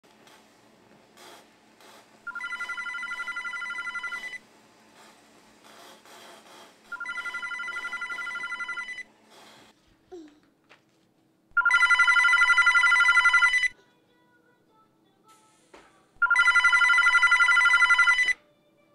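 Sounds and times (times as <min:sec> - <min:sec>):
telephone ringing with warbling trill: 0:02.3 - 0:04.4, 0:06.9 - 0:09.1, 0:11.6 - 0:13.7, 0:16.2 - 0:18.4.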